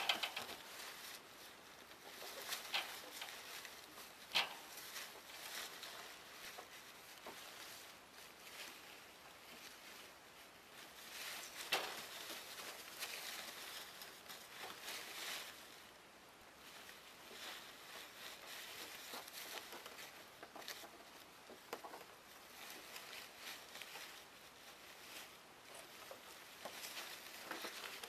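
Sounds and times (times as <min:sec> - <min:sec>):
paper bedding rustling: 0:21.9 - 0:28.0.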